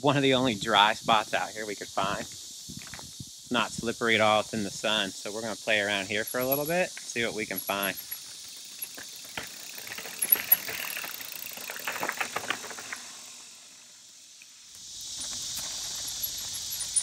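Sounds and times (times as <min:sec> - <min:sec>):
steady high hiss: 0:00.0 - 0:17.0
mountain bike clattering over rocks: 0:06.2 - 0:13.3.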